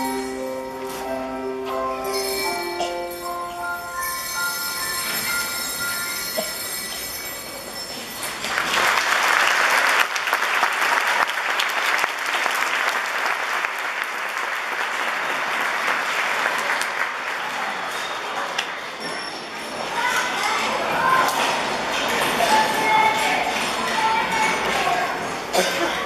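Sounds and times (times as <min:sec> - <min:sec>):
metallic bell-like ringing: 0:00.0 - 0:08.5
audience applause: 0:08.3 - 0:18.8.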